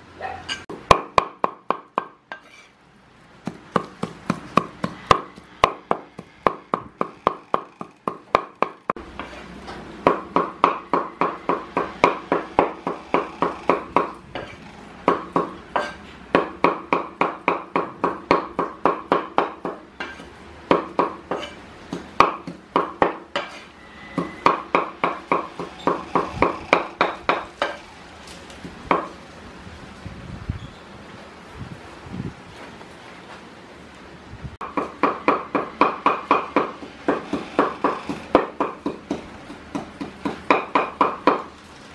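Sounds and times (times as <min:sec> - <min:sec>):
cleaver chopping on wooden board: 0:03.4 - 0:09.3, 0:15.1 - 0:23.5, 0:34.6 - 0:41.5.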